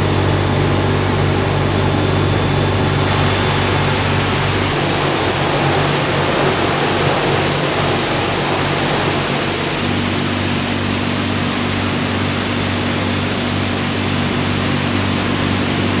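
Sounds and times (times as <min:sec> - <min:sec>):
electric motor hum: 0:00.0 - 0:05.6
machinery rush of air: 0:00.0 - 0:16.0.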